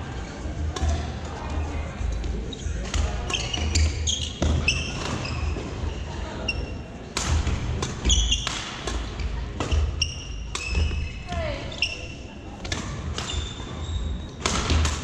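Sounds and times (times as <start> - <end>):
court shoes squeaking: 2.0 - 15.0
racket striking shuttlecock: 14.4 - 15.0.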